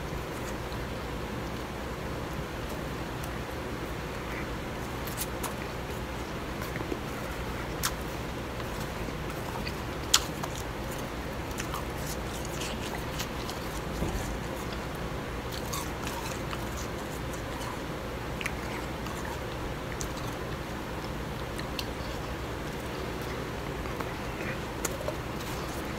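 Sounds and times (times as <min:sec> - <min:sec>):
chewing and crunching ice: 0:04.0 - 0:25.9.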